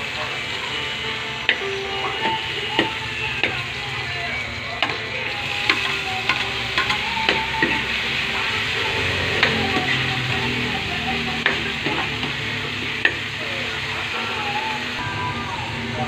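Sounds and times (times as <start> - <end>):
onions sizzling in oil: 0.0 - 16.0.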